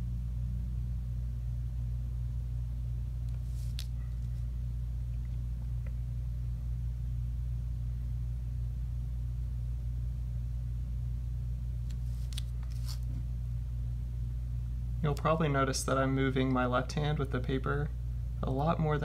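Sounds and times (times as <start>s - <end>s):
steady low hum: 0.0s - 19.0s
paper scraping on wooden table: 12.0s - 13.1s.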